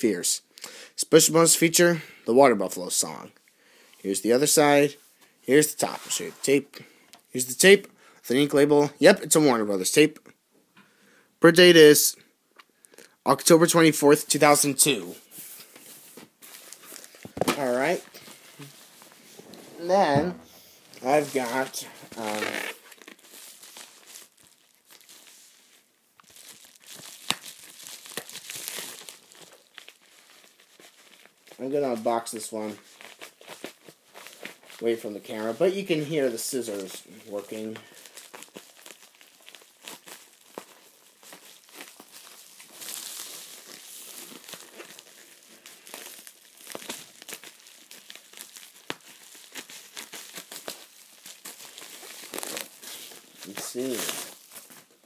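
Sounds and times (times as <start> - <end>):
packaging crinkling and rustling: 15.4 - 55.0.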